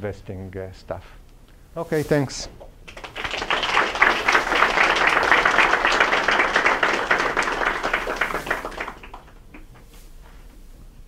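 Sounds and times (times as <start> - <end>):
audience applauding: 2.9 - 9.7.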